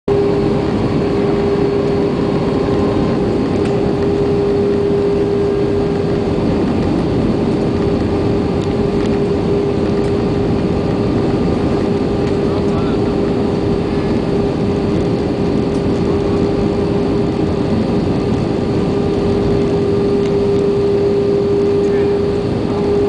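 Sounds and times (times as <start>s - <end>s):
jet engine and airflow rush: 0.0s - 23.0s
constant tone: 0.1s - 23.0s.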